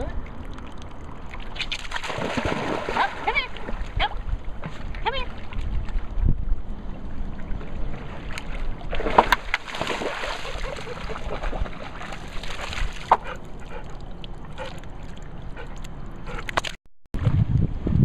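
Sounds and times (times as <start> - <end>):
dog splashing through water: 1.3 - 4.0, 7.9 - 13.9.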